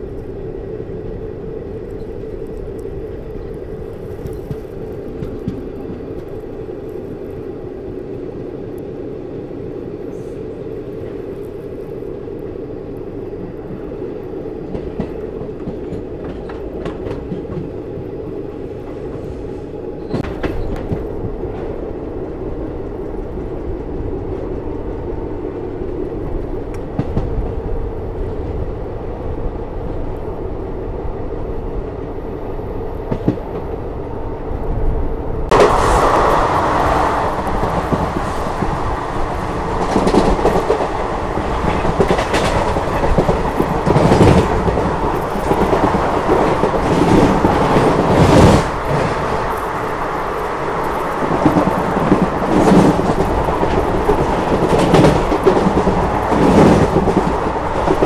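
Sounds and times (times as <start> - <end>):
train wheels clattering over rails: 4.0 - 6.4, 14.6 - 18.1, 20.0 - 21.8, 35.5 - 58.0.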